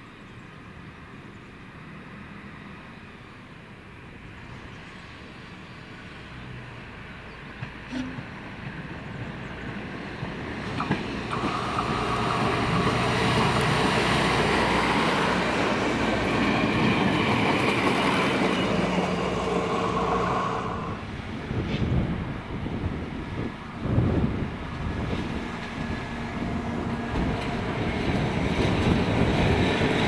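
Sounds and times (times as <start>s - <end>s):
diesel train passing: 0.4s - 30.0s
wheels on rails: 10.3s - 21.0s.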